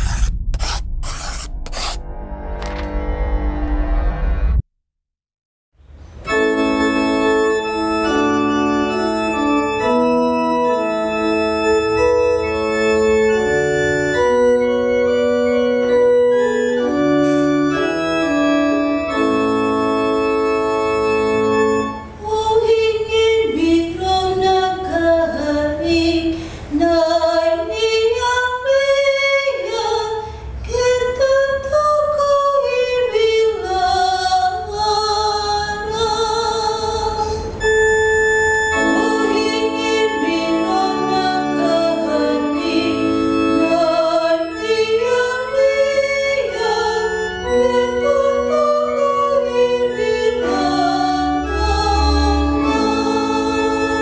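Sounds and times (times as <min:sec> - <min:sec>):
organ chords: 0:06.0 - 0:25.8, 0:33.6 - 0:54.0.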